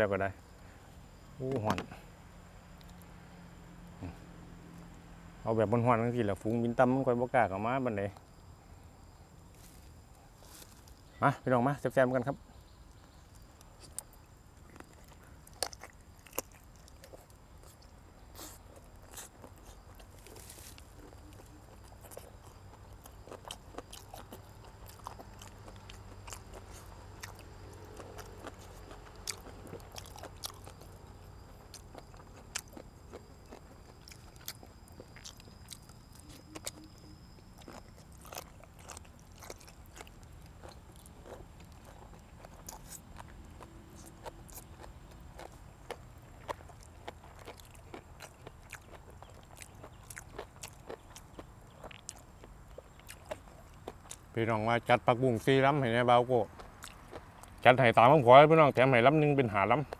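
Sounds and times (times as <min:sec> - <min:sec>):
chewing crunchy food: 0:12.9 - 0:58.2, 0:59.6 - 0:59.9.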